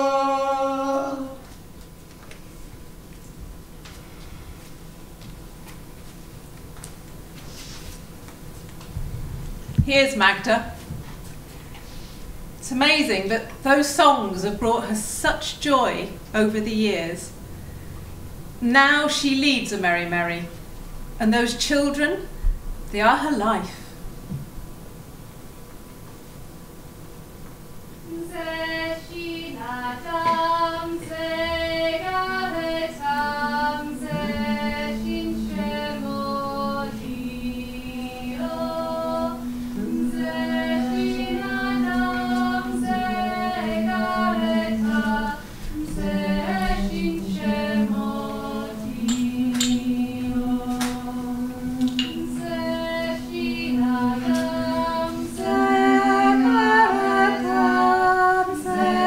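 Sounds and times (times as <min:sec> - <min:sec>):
group singing without instruments: 0:00.0 - 0:01.6, 0:28.1 - 0:59.0.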